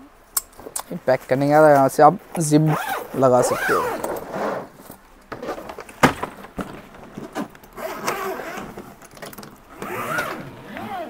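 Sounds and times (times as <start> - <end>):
suitcase shell scraping: 2.8 - 10.9.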